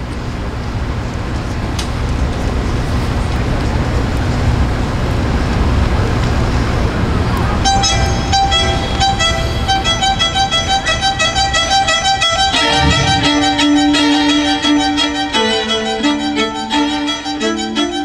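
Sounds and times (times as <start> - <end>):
low rumbling background noise: 0.0 - 17.4
violin playing quick short notes: 12.2 - 15.8
low string holding a note: 12.3 - 14.8.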